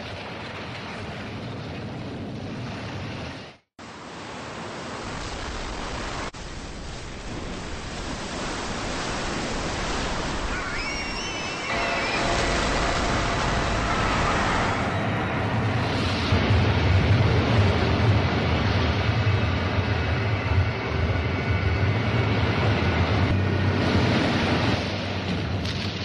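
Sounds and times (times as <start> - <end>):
rushing water and surf: 0.0 - 20.5, 22.2 - 26.0
high wavering glides: 10.3 - 17.1
deep rumble: 11.3 - 26.0.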